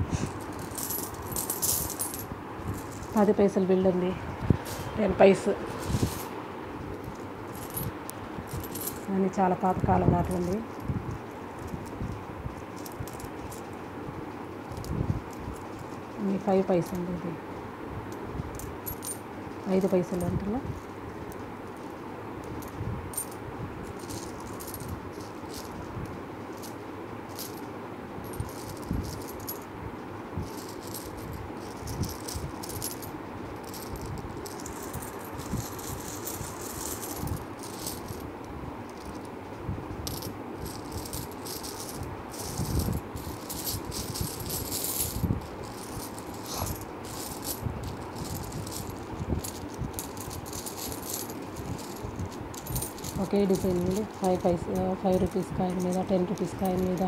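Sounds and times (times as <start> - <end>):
steady background noise: 0.0 - 57.0
coins clicking and clinking: 0.4 - 3.3, 7.1 - 9.1, 12.6 - 13.8, 18.5 - 20.5, 21.3 - 25.9, 26.5 - 29.7, 30.4 - 38.3, 38.9 - 39.3, 40.0 - 57.0.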